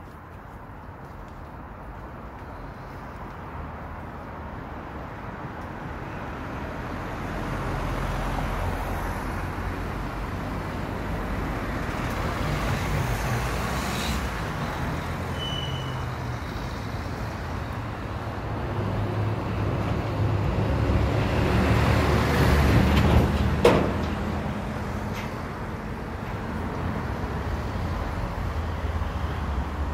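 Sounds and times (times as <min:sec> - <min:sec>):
road traffic passing: 0:00.0 - 0:29.9
high squeak: 0:15.3 - 0:16.1.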